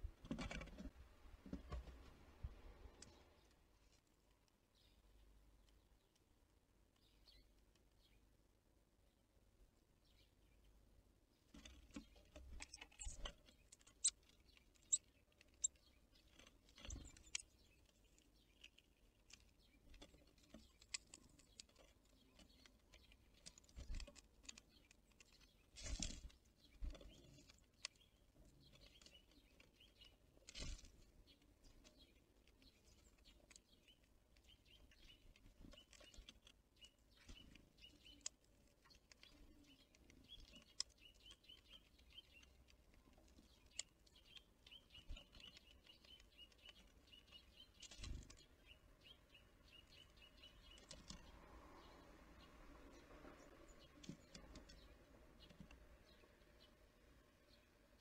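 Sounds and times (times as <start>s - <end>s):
birds tapping and pecking: 0.0s - 58.0s
thin high bird chirps: 10.0s - 58.0s.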